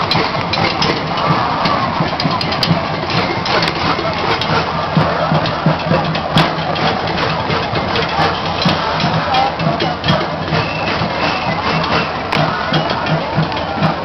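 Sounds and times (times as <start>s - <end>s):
clatter of knocks and bangs: 0.0s - 14.0s.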